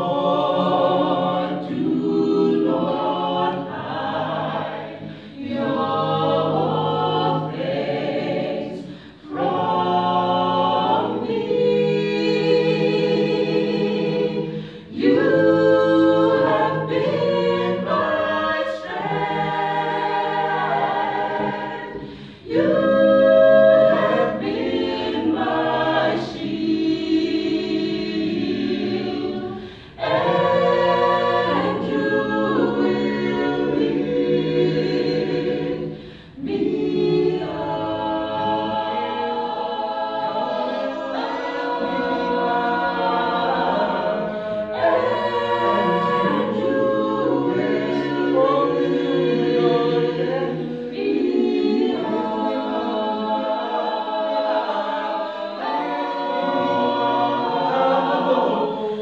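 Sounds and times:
group singing a cappella: 0.0 - 59.0.

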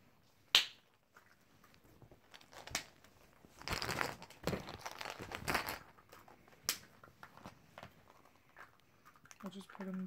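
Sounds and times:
plastic bag crinkling: 2.2 - 6.6.

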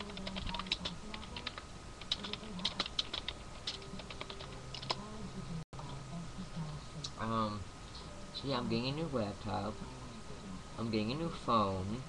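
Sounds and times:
computer keyboard typing: 0.0 - 5.1.

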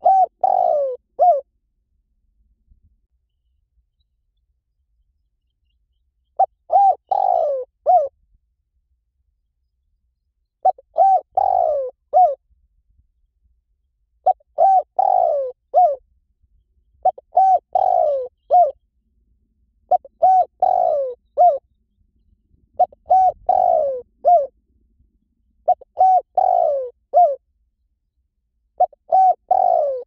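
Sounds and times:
dove cooing: 0.0 - 1.5, 6.4 - 8.2, 10.6 - 12.4, 14.2 - 16.0, 17.0 - 18.8, 19.9 - 21.6, 22.8 - 24.6, 25.6 - 27.4, 28.8 - 30.0.

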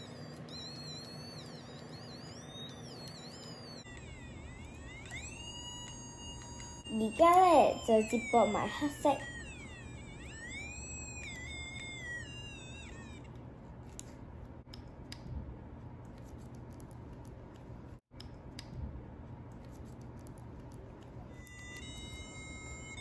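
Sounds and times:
high wavering electronic tone: 0.0 - 13.4, 21.3 - 23.0
wires being twisted clicks: 0.0 - 18.8, 19.4 - 23.0.

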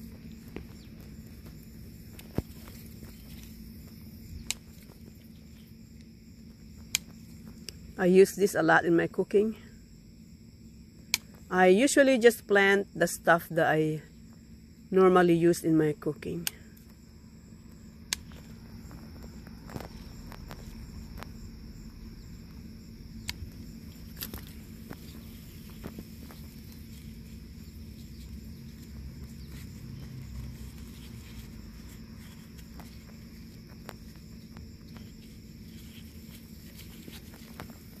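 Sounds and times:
high insect trill: 0.0 - 38.0.

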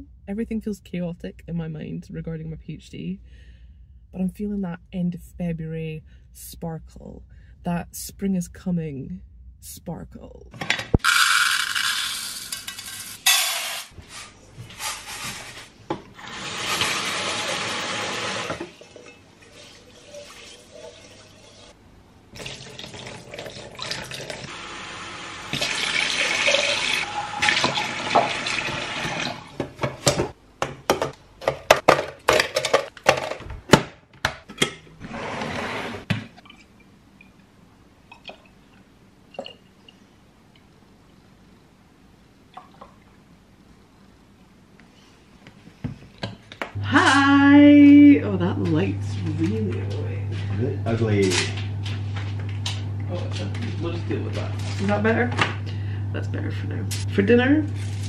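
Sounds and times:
dry rice pouring: 11.0 - 12.5
kitchen tap running: 16.2 - 21.8, 22.4 - 30.3.

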